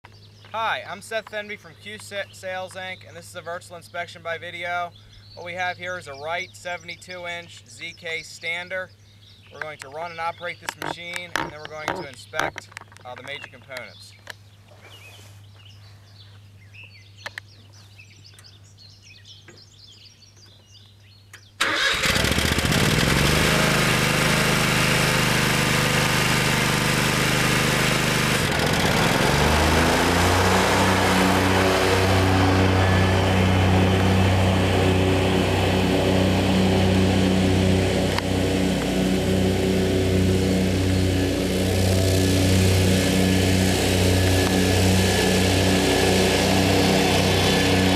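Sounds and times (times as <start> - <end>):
mower engine revving: 21.6 - 47.9.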